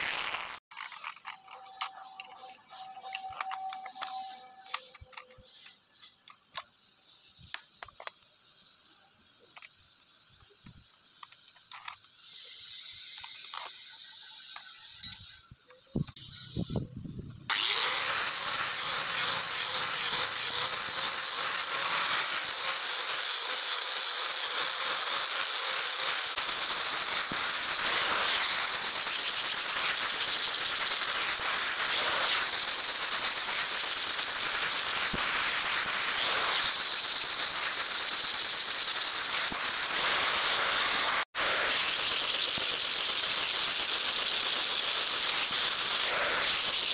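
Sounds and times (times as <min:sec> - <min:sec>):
angle grinder grinding steel: 0:00.0 - 0:06.2, 0:17.5 - 0:46.9.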